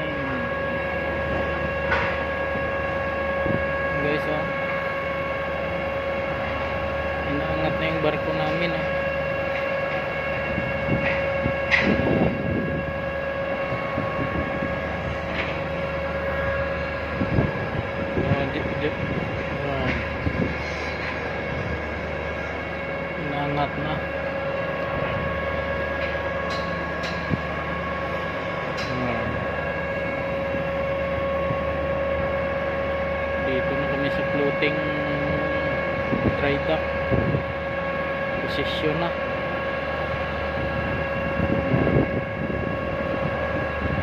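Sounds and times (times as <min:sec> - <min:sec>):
high whine: 0:00.0 - 0:44.0
ship machinery hum: 0:00.0 - 0:44.0.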